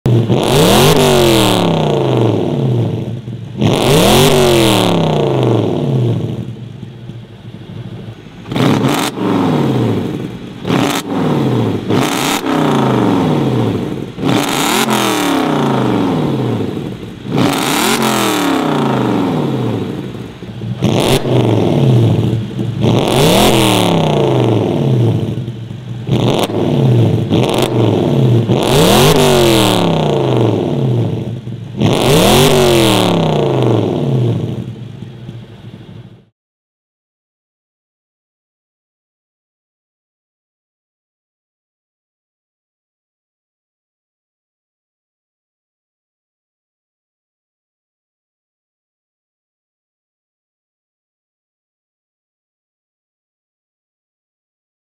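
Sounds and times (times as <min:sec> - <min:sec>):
car engine revving: 0:00.1 - 0:36.3.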